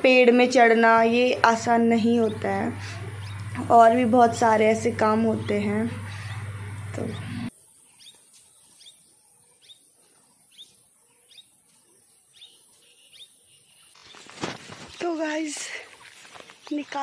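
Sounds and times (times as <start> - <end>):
small bird chirping: 2.0 - 3.9, 5.3 - 17.0.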